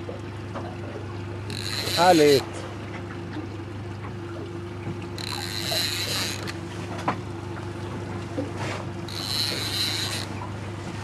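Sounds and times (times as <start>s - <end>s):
fishing reel drag buzzing: 1.5s - 2.5s, 5.2s - 6.6s, 9.1s - 10.4s.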